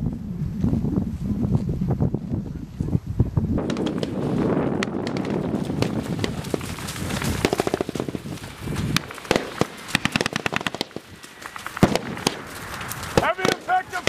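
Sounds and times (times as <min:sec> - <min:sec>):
gunfire cracks: 0:03.6 - 0:08.2, 0:08.9 - 0:14.0.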